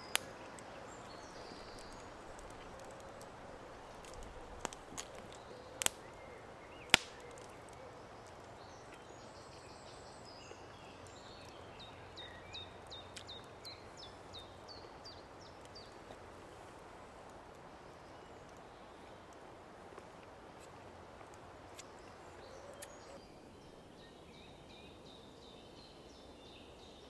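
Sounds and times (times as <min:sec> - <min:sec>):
small birds calling: 0:00.0 - 0:16.3, 0:20.6 - 0:27.0
sharp clicks: 0:03.9 - 0:06.1, 0:06.9 - 0:07.8.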